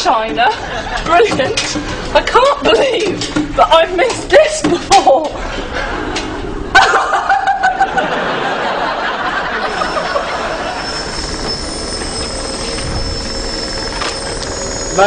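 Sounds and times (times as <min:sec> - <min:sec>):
studio audience laughter: 0:00.5 - 0:01.2, 0:06.7 - 0:11.1
shoe-shine machine whining: 0:09.6 - 0:15.0.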